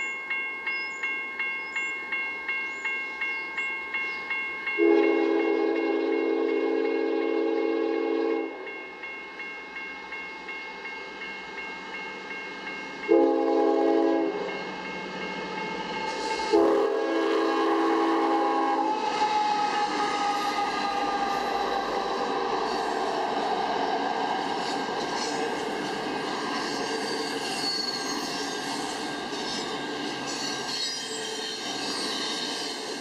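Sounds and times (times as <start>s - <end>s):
crossing bells ringing: 0.0s - 33.0s
freight train passing: 0.0s - 33.0s
locomotive horn blasts: 4.8s - 8.6s, 13.1s - 14.5s, 16.5s - 22.1s.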